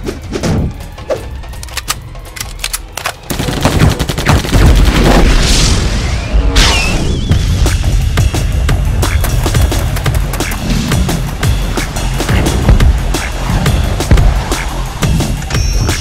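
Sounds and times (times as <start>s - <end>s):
music: 0.0s - 16.0s
rapid gunshots: 3.2s - 5.3s.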